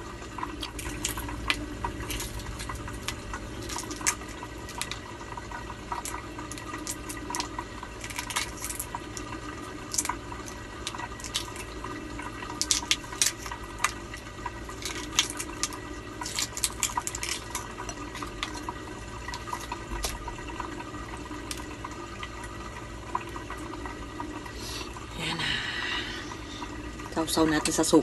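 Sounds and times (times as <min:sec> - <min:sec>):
water trickling: 0:00.0 - 0:28.0
eggshell crackling as peeled: 0:00.3 - 0:22.6.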